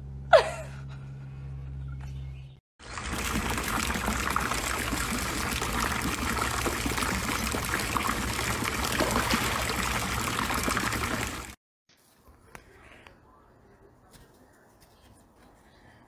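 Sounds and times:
running water pouring: 2.8 - 11.6.

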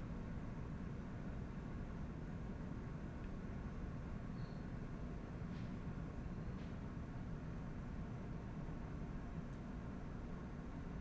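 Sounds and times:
faint high squeak: 4.3 - 4.7.

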